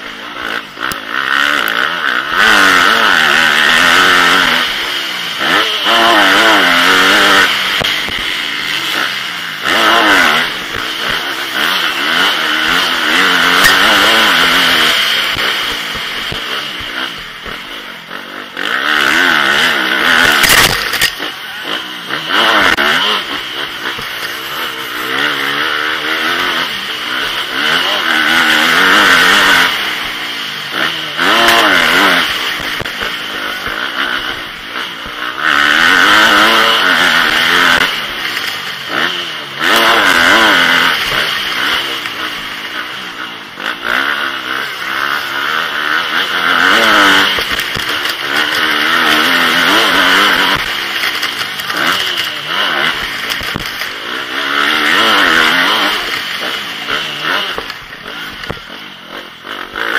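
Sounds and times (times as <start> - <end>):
motocross engine revving: 0.0 - 59.9.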